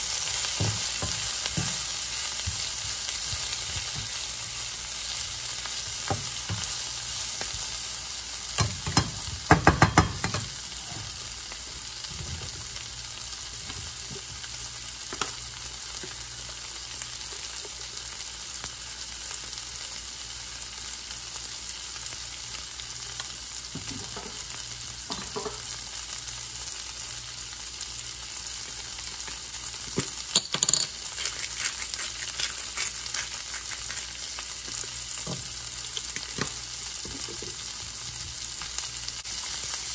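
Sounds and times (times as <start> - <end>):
food sizzling in a skillet: 0.0 - 39.9
spatula scraping and knocking pan: 0.4 - 4.2.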